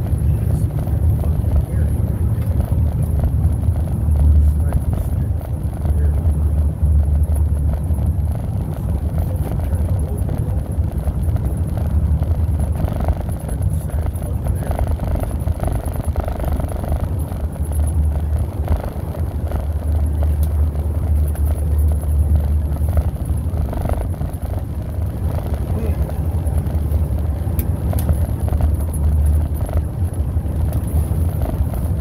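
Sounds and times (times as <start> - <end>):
vehicle engine and road rumble: 0.0 - 32.0.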